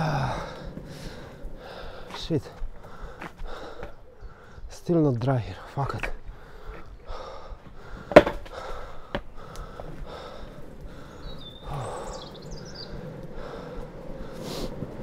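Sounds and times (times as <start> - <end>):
skateboard wheels rolling on tarmac: 0.0 - 15.0
bird chirping: 3.8 - 8.0, 10.3 - 13.8
longboard knocking on tarmac: 8.1 - 8.5.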